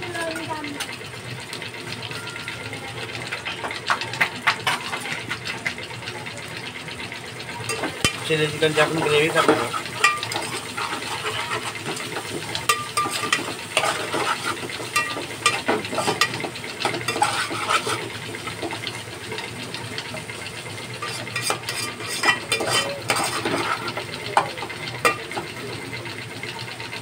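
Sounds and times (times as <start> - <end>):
food sizzling: 0.0 - 27.0
spoon scraping metal pot: 7.7 - 18.8, 21.0 - 24.1.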